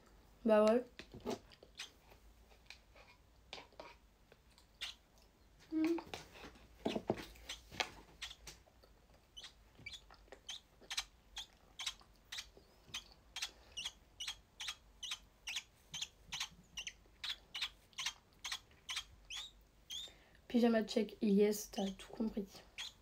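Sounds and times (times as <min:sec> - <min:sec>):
bird chirping high: 0:07.4 - 0:08.4, 0:09.4 - 0:20.2, 0:22.7 - 0:23.0.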